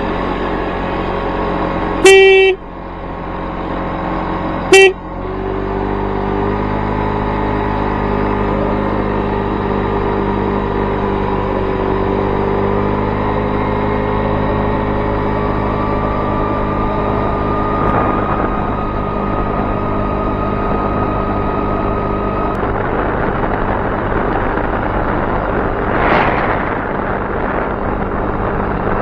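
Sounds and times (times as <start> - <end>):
moped engine and road noise: 0.0 - 29.0
moped horn tooting: 2.0 - 2.6, 4.7 - 5.0.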